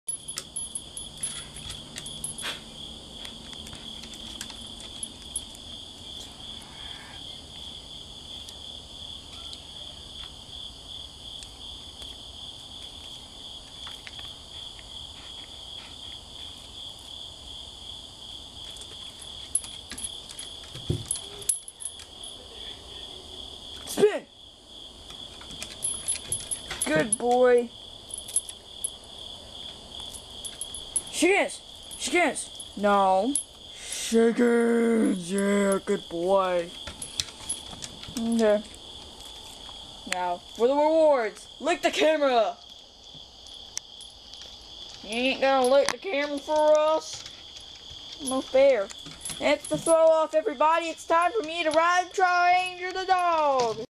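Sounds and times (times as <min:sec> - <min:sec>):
faint clicks and jingles: 0:00.0 - 0:07.4, 0:18.6 - 0:23.1, 0:25.0 - 0:33.8, 0:35.2 - 0:53.9
crickets chirping: 0:00.0 - 0:53.9.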